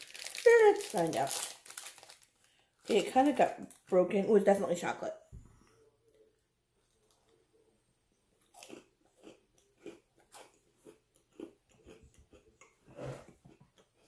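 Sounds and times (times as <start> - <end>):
person chewing crunchy cookie: 8.3 - 14.0.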